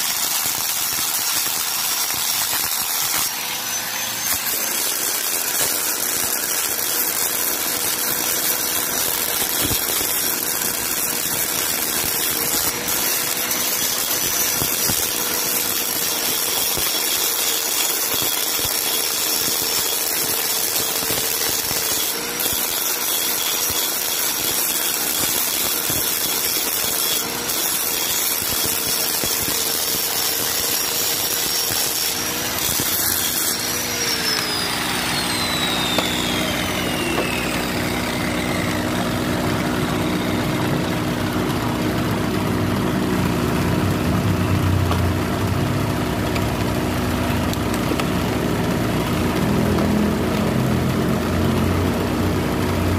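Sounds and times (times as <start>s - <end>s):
angle grinder grinding stone: 0.0s - 42.2s.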